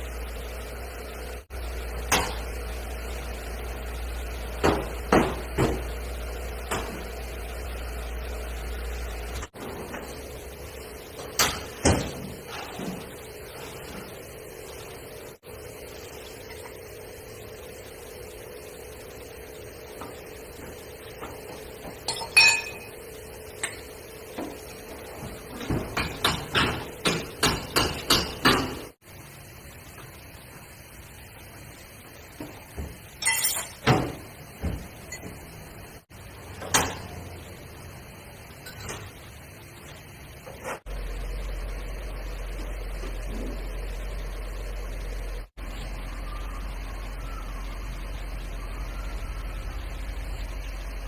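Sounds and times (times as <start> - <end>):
steady low hum: 0.0 - 51.0
metal tool clinking: 22.1 - 22.9, 33.2 - 33.8
sharp metallic knocks: 25.9 - 28.8.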